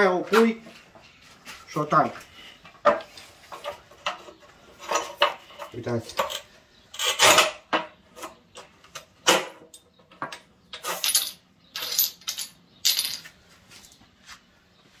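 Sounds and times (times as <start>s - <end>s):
tile pieces clinking on concrete: 10.8s - 13.4s.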